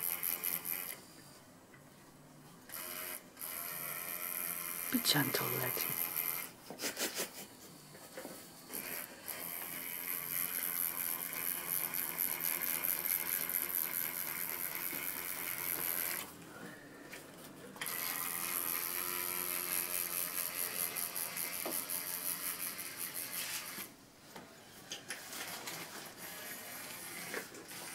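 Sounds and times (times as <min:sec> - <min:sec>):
tattoo machine buzzing: 0:00.0 - 0:01.2, 0:02.7 - 0:06.6, 0:08.6 - 0:16.3, 0:17.8 - 0:23.9, 0:26.0 - 0:27.9.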